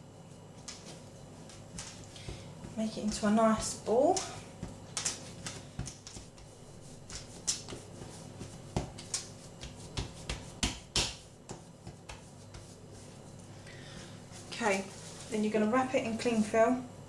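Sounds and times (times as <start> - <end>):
hands patting dough: 0.6 - 15.5.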